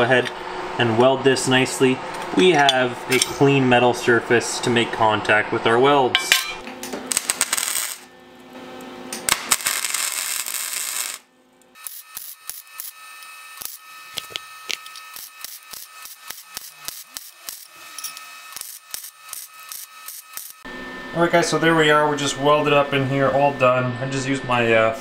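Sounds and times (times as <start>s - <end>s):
welding arc sizzling: 6.8s - 20.7s.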